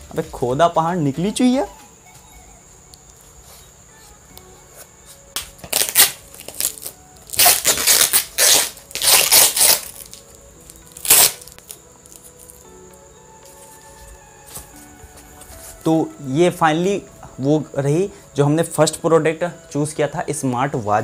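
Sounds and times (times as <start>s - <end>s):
plastic packaging tearing and crinkling: 5.4s - 12.6s.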